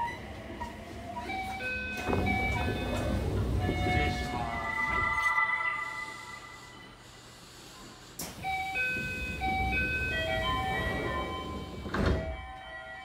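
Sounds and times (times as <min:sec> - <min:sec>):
sliding train doors closing: 0:00.0 - 0:05.4, 0:07.8 - 0:12.8
electronic chime melody: 0:03.9 - 0:07.0.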